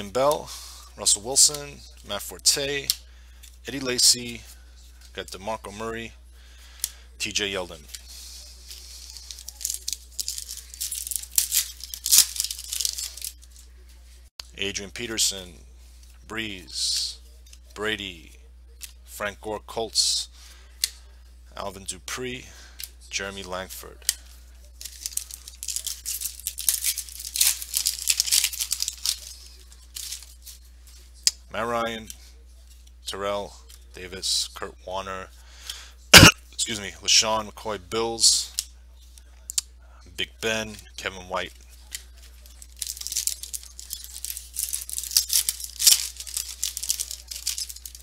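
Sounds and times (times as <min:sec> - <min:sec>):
foil wrapper crinkling: 0:08.1 - 0:13.5, 0:24.2 - 0:31.0, 0:41.8 - 0:48.0.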